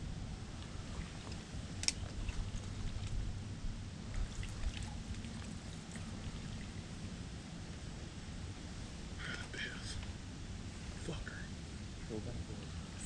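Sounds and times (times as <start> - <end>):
low rumble: 0.0 - 13.0
water sloshing and dripping: 0.6 - 3.4, 4.0 - 7.2.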